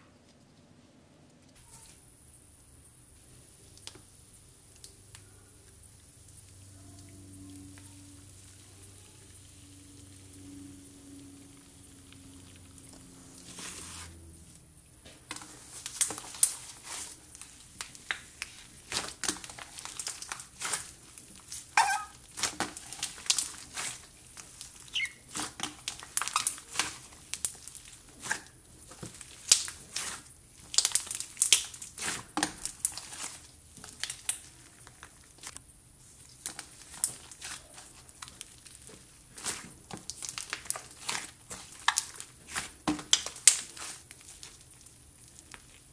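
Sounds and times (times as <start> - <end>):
hands kneading slime: 12.4 - 45.9
sticky crackles and pops: 15.3 - 45.9.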